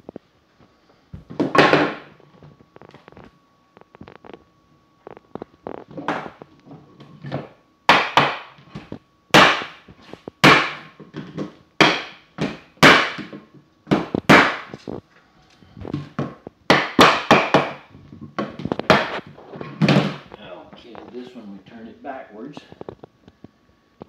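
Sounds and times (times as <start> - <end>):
hammer knocking on wood block: 11.8 - 13.3.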